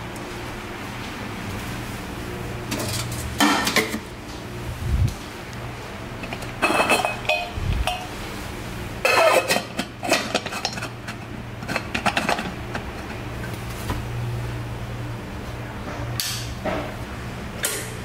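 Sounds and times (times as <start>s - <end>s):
metal lid clinking on pot: 6.2s - 8.1s.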